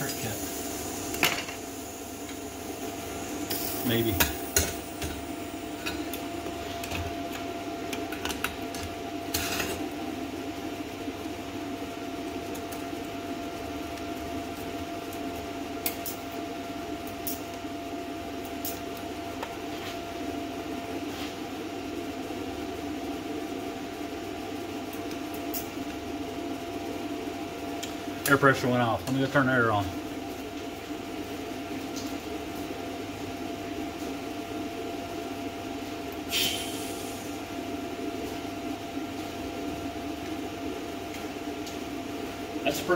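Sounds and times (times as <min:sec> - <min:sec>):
cooling fan humming: 0:00.0 - 0:42.9.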